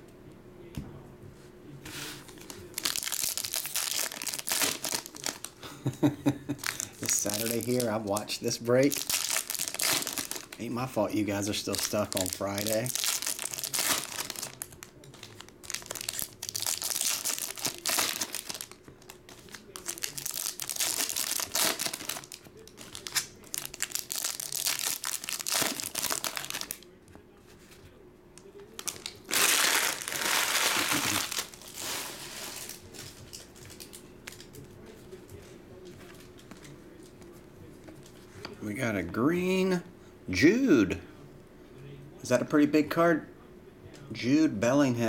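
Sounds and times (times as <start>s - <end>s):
foil wrappers crinkling and tearing: 2.2s - 26.9s, 28.5s - 34.7s.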